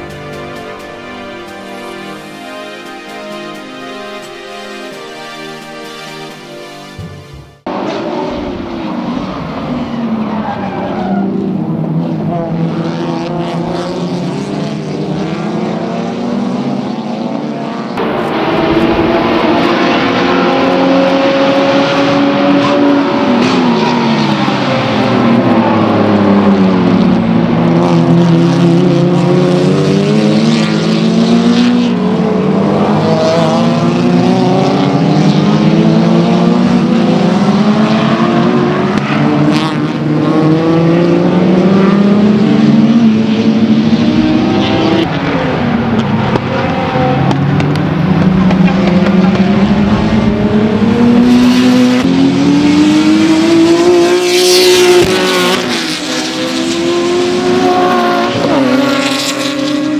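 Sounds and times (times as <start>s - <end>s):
race car engines accelerating: 0.0s - 59.9s
race car passing close: 7.0s - 59.9s.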